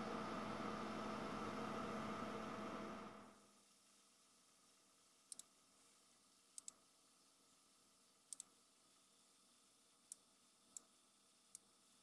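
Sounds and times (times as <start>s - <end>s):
computer mouse clicks: 5.3s - 5.6s, 6.6s - 6.8s, 8.3s - 8.6s.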